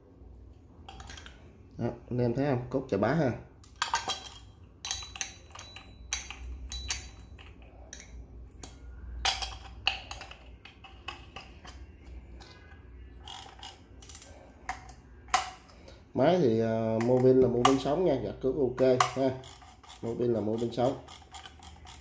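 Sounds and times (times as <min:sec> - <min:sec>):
metal parts clicking and knocking: 0:00.9 - 0:01.4, 0:03.6 - 0:15.9, 0:18.7 - 0:22.0.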